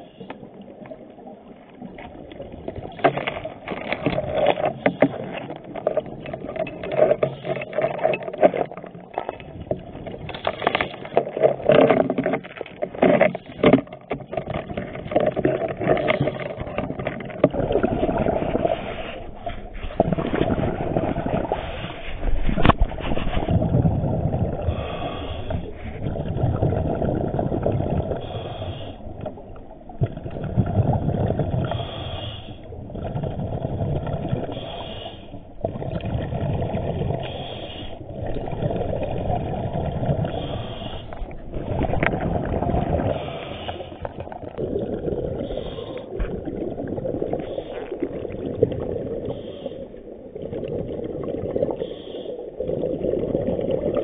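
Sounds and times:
exhaled bubbles gushing: 0.0 - 54.0
regulator inhale hiss: 24.7 - 25.8, 28.2 - 29.1, 31.6 - 32.7, 34.5 - 35.4, 37.2 - 38.0, 40.3 - 41.3, 43.1 - 44.2, 45.4 - 46.2, 49.2 - 50.0, 51.8 - 52.5.

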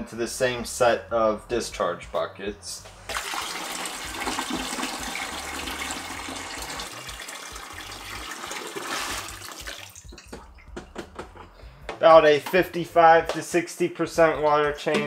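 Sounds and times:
water draining through hose into bucket: 3.1 - 10.8.

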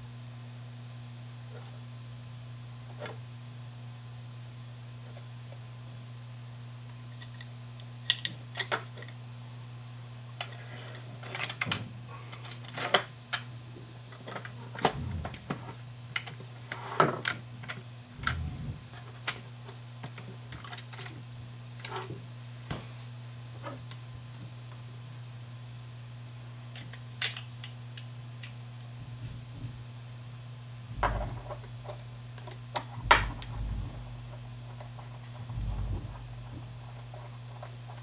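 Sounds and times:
steady low hum: 9.0 - 26.7, 28.1 - 38.0.

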